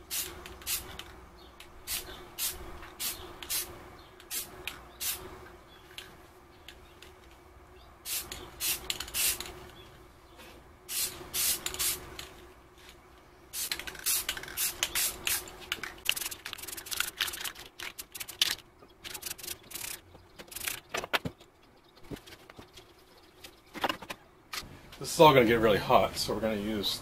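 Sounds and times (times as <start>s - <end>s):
spray-paint can hissing: 0.0s - 1.1s, 1.9s - 5.3s, 8.0s - 9.5s, 10.9s - 12.1s, 13.5s - 18.5s, 19.1s - 20.8s.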